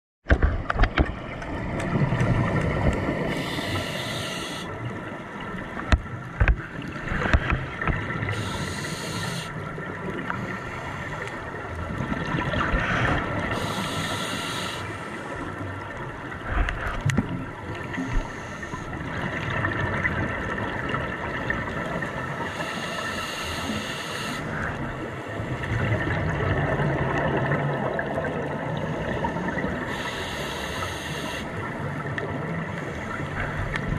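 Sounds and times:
muffled underwater hum: 0.3s - 19.8s, 20.5s - 33.9s
exhaled bubbles underwater: 11.4s - 22.6s, 24.4s - 33.9s.

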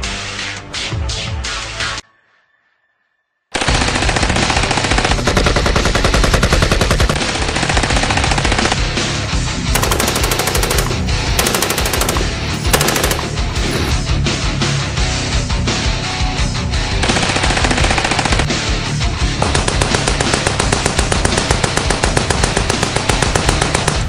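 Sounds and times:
background music: 0.0s - 24.0s
machine-gun bursts: 9.8s - 13.9s, 17.0s - 18.5s.

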